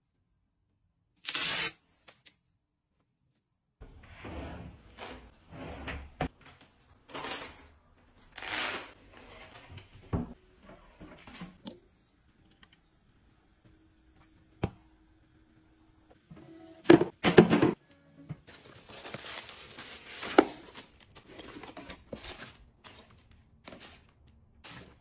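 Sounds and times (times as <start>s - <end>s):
drawer sliding: 3.9s - 6.3s.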